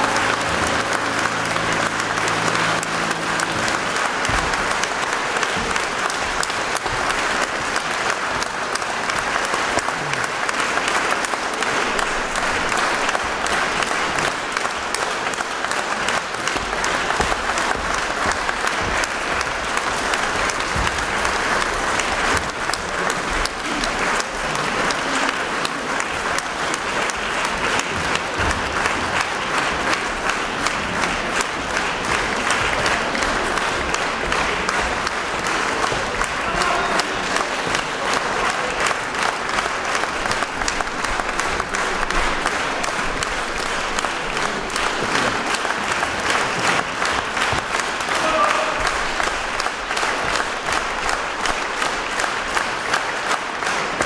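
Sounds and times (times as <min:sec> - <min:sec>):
held chord of music: 0:00.0 - 0:05.9
audience applauding: 0:00.0 - 0:54.0.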